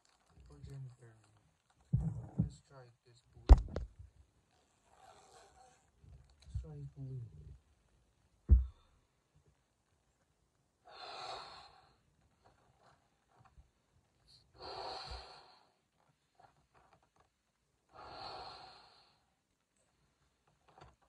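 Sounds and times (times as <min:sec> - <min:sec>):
quiet inhales: 0:14.6 - 0:15.8, 0:17.9 - 0:19.3.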